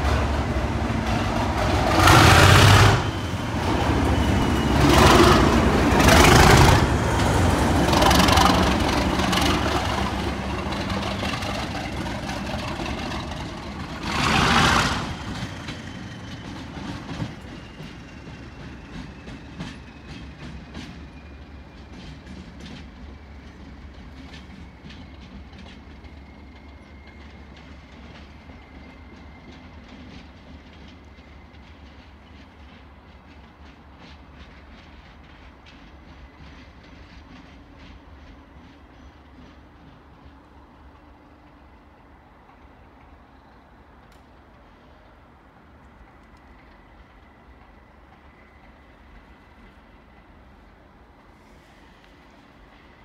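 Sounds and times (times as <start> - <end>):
diesel locomotive engine growling: 0.0 - 53.0.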